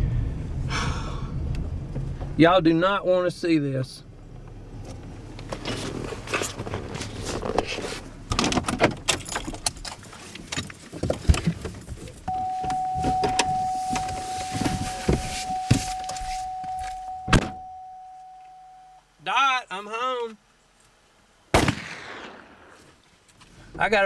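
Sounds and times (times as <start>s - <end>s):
car door opening: 4.4s - 18.6s
clicks and rustling in car cabin: 4.4s - 18.6s
car warning tone: 12.3s - 19.1s.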